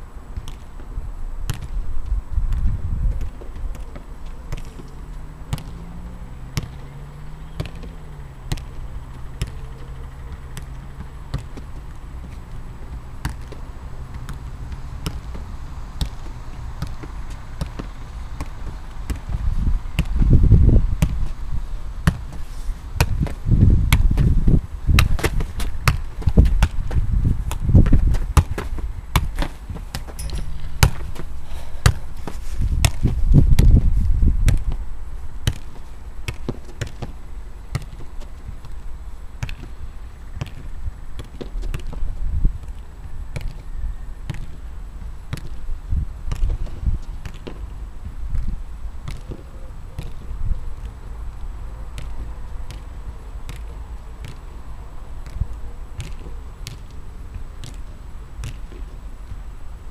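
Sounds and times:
football kicked and bouncing: 0:00.4 - 0:21.4, 0:22.0 - 0:34.8, 0:35.4 - 0:38.8, 0:39.4 - 0:44.7, 0:45.3 - 0:45.6, 0:46.2 - 0:54.6, 0:55.2 - 0:59.4
wind buffeting microphone: 0:01.0 - 0:03.8, 0:14.6 - 0:35.1, 0:41.6 - 0:42.7.

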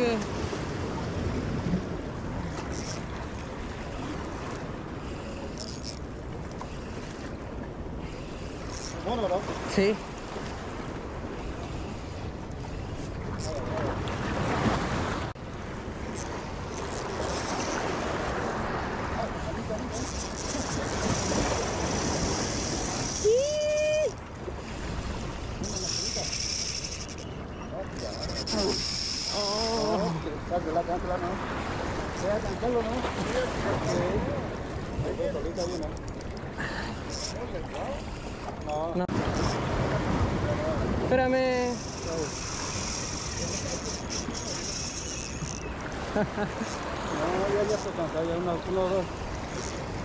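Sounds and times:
wind rumble on microphone: 0:00.0 - 0:05.2, 0:39.0 - 0:47.2
surf: 0:00.0 - 0:50.0
wind: 0:00.0 - 0:50.0
fishing reel whirring: 0:02.3 - 0:07.0, 0:08.0 - 0:09.4, 0:11.9 - 0:13.7, 0:16.1 - 0:18.6, 0:19.9 - 0:24.2, 0:25.5 - 0:30.2, 0:32.0 - 0:32.8, 0:33.8 - 0:34.2, 0:35.3 - 0:38.6, 0:39.2 - 0:39.7, 0:41.4 - 0:50.0
waves washing against rocks: 0:13.1 - 0:27.2, 0:38.9 - 0:50.0.

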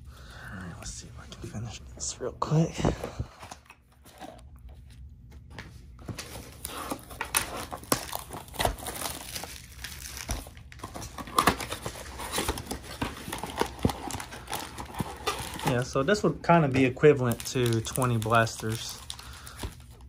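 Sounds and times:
cardboard box crinkling and tearing: 0:06.2 - 0:16.3, 0:17.0 - 0:20.0.

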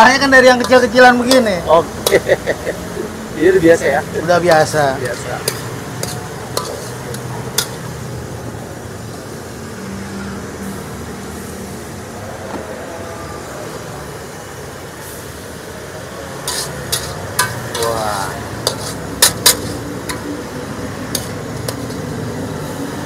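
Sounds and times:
metal ladle clanking in wok: 0:04.5 - 0:08.0, 0:16.4 - 0:22.2.

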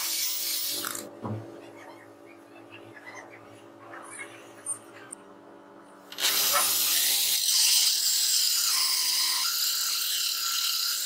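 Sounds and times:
drill cutting through plywood: 0:06.1 - 0:11.0.

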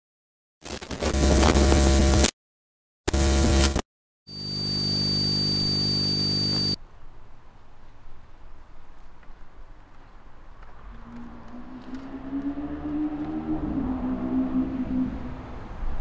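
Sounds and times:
distorted noise bursts: 0:00.6 - 0:02.3, 0:03.1 - 0:06.8
vhs static: 0:00.6 - 0:02.3, 0:03.1 - 0:06.8
electrical hum with high whine: 0:03.1 - 0:06.8
faint outdoor background sound: 0:04.3 - 0:16.0.

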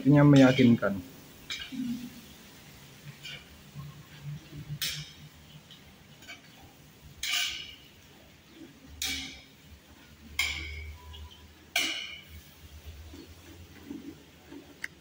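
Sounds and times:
metal spatula scraping a wok: 0:03.1 - 0:05.4, 0:06.2 - 0:07.9.

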